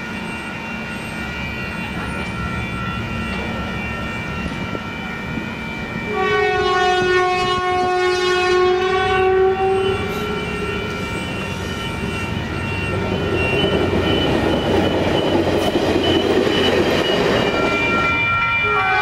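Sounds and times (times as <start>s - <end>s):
locomotive engine rumble: 0.0s - 6.6s, 7.4s - 18.2s
locomotive horn blast: 6.0s - 12.2s, 17.7s - 19.0s.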